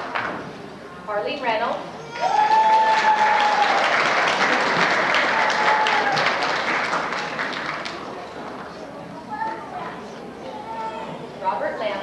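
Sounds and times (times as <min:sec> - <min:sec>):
high held cheer: 0:02.0 - 0:07.2
audience applauding: 0:02.4 - 0:08.4.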